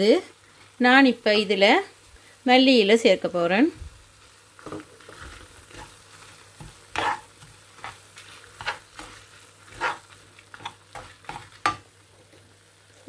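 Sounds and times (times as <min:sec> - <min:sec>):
faint sizzle of pan: 0:00.0 - 0:13.0
spatula scraping frying pan: 0:04.6 - 0:11.9.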